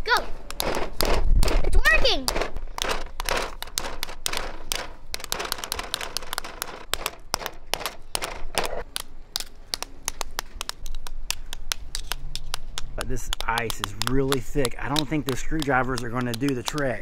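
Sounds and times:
screwdrivers chipping ice: 11.6 - 17.0.

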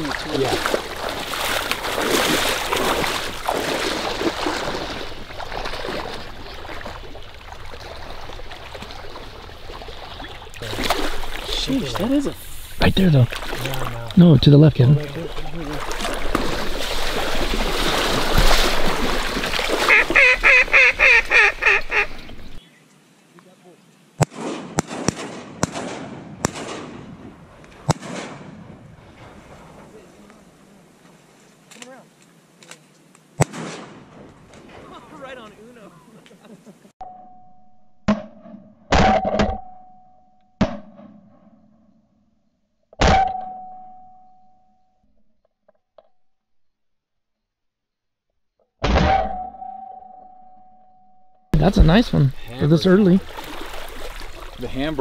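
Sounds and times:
duck quacking: 19.9 - 22.2
shotgun shots with echo: 24.2 - 28.7, 33.4 - 34.3.

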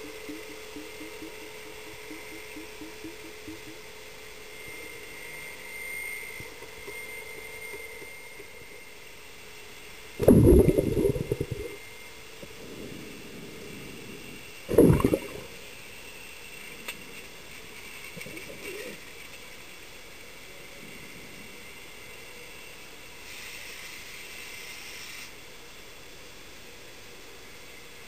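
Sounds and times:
faint underwater hum with whine: 0.0 - 28.0
low gurgles of water and air: 5.9 - 22.2.

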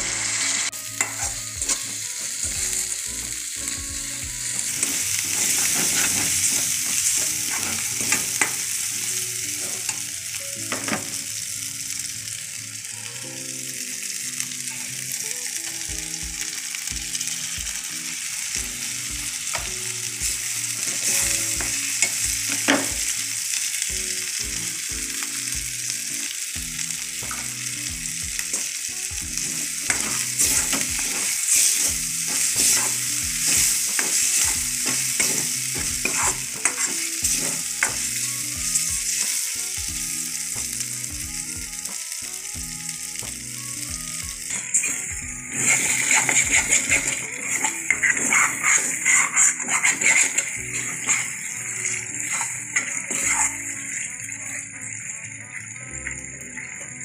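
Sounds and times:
food sizzling in hot oil: 0.0 - 57.0
metal spatula scraping pan: 1.0 - 1.9, 4.6 - 8.7, 29.4 - 38.0, 44.5 - 53.7.

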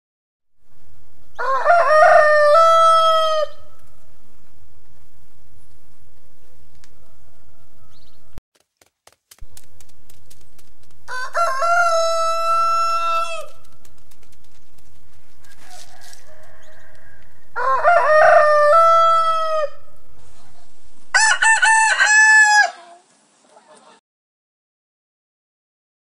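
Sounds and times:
rooster crowing: 1.3 - 3.8, 6.8 - 8.4, 11.0 - 13.7, 15.3 - 20.0, 21.1 - 23.0.

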